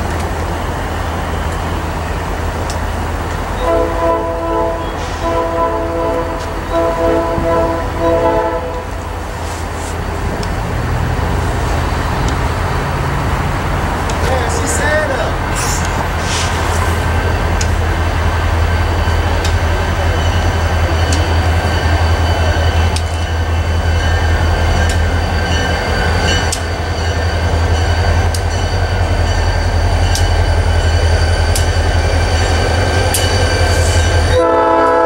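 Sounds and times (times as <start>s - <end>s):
diesel locomotive engine rumble: 0.0s - 35.0s
locomotive horn blowing: 3.6s - 9.0s, 34.2s - 35.0s
wheels clicking over rail joints: 9.7s - 34.1s.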